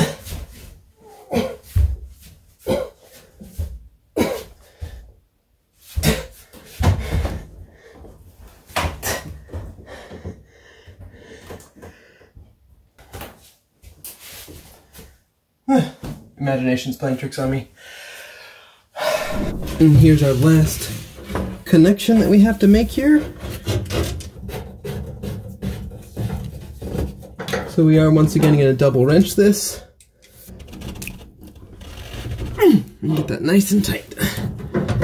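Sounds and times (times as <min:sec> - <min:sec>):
metal cabinet thumping: 0:19.2 - 0:21.5
rubbing and shuffling: 0:19.2 - 0:23.8.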